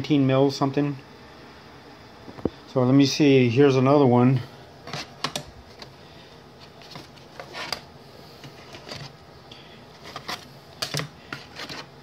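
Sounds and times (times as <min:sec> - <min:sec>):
circuit boards clicking and tapping: 0:04.9 - 0:05.9.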